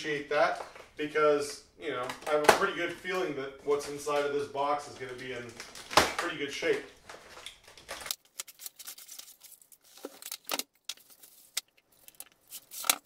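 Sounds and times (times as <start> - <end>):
cardboard and tape tearing: 5.5 - 13.0.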